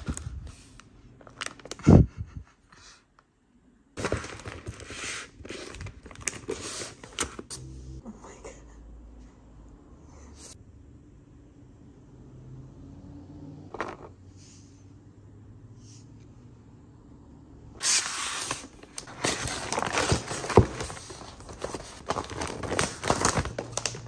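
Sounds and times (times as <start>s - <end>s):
wrapping paper tearing and crinkling: 4.0s - 7.5s, 17.8s - 24.0s.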